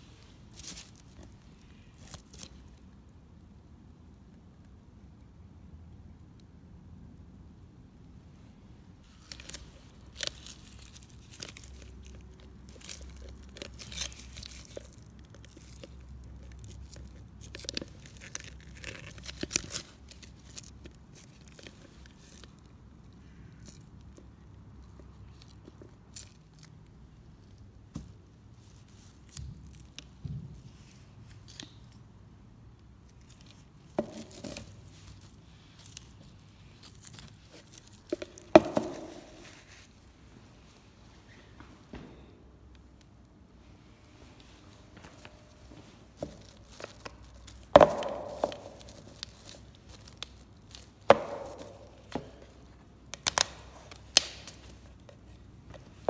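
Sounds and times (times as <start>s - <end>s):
plastic cup crinkling and crackling: 0.2s - 3.1s, 9.0s - 32.2s, 32.8s - 40.0s, 44.6s - 56.0s.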